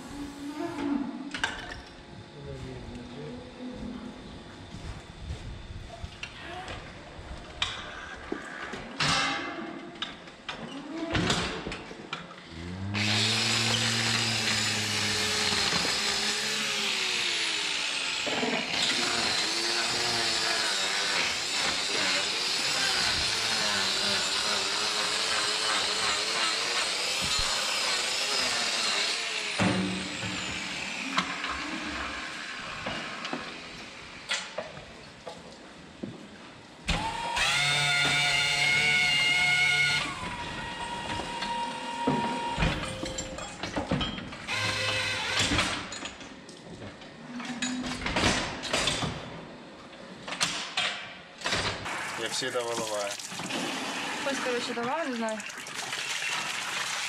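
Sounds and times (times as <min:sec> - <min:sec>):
power grinder on hoof: 0:12.5 - 0:34.8, 0:36.9 - 0:43.2, 0:44.4 - 0:46.2, 0:53.4 - 0:55.2.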